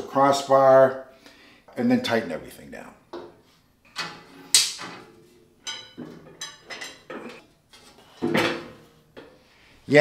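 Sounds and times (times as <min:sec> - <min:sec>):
metal lid clanking: 0:03.9 - 0:09.3
metallic knocks and rattles: 0:03.9 - 0:09.3.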